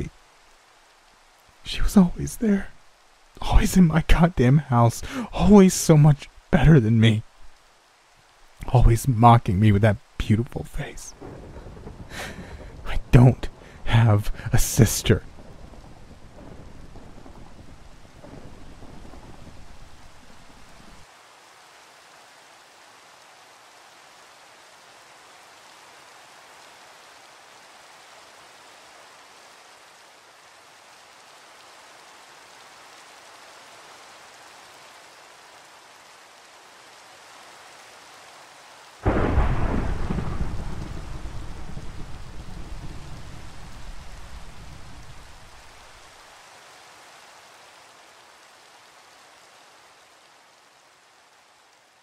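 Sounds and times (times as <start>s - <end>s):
steady rain falling: 0.0s - 52.0s
thunder clap and rumble: 11.1s - 21.0s, 39.0s - 45.8s.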